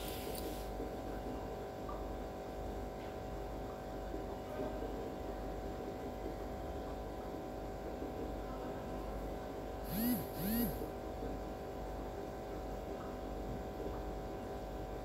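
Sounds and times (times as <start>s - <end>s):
steady hum: 9.8s - 11.0s.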